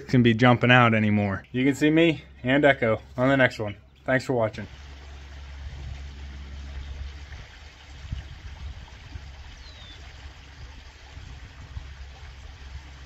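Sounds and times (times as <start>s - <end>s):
water trickling down rocks: 4.0s - 13.0s
low rumble: 4.7s - 13.0s.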